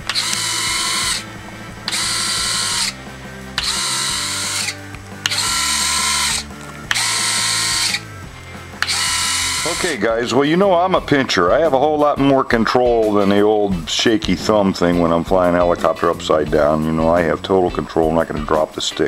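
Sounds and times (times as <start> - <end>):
landing gear retracts whirring: 3.6 - 8.0, 8.8 - 9.9.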